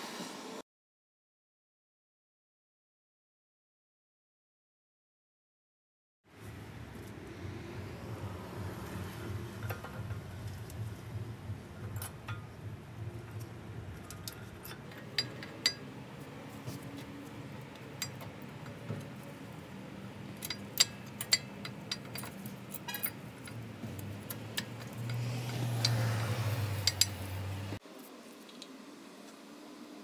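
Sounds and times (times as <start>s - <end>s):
steady low hum: 6.4s - 27.8s
brake pads clicking on metal: 9.1s - 27.8s.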